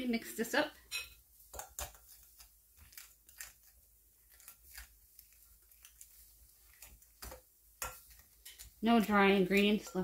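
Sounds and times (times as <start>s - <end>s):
dough stirred in a glass bowl: 0.8s - 10.0s.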